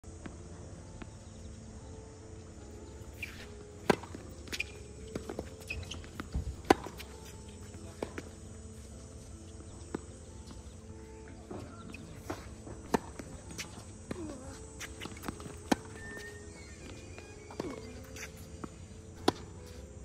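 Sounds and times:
tennis balls struck by rackets: 2.9s - 20.0s
balls bouncing on hard court: 3.2s - 8.4s, 11.4s - 18.4s.

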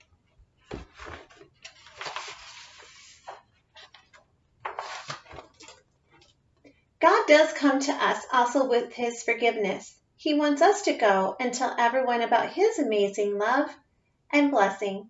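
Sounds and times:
paper pages rustling: 0.0s - 6.4s.

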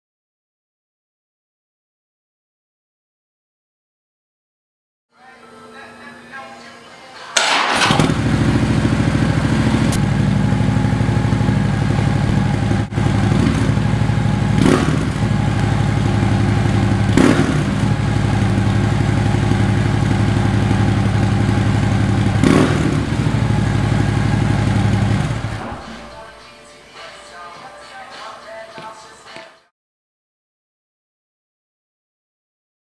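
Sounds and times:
motorcycle engine idling: 7.4s - 26.1s.

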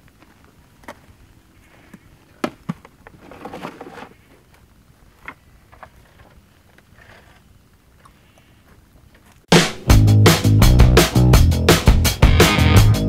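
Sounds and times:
short rustle: 3.1s - 9.5s.

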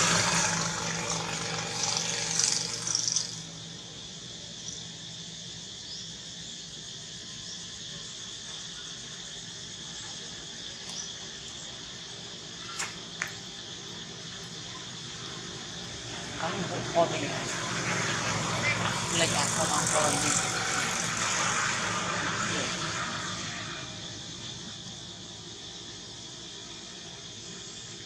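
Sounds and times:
vehicle passing: 0.0s - 3.9s, 14.0s - 25.5s
high-pitched insect drone: 0.0s - 28.0s.

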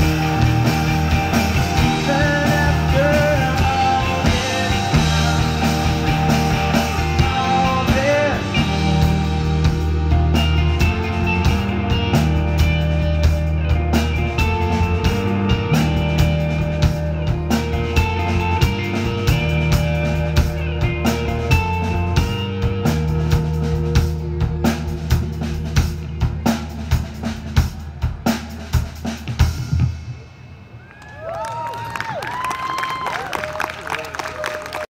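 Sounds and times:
live rock band playing: 0.0s - 30.8s
audience whistling and cheering: 30.6s - 34.9s.

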